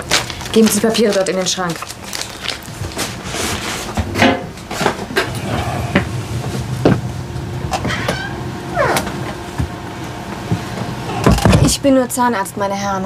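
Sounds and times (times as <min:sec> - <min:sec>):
paper rustling: 0:00.0 - 0:04.0
low steady hum: 0:00.0 - 0:13.0.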